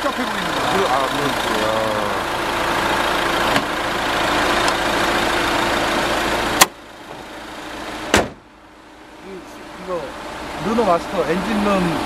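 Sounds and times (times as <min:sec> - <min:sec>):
diesel engine idling: 0:00.0 - 0:12.0
hood slamming shut: 0:03.4 - 0:03.8, 0:08.0 - 0:08.5.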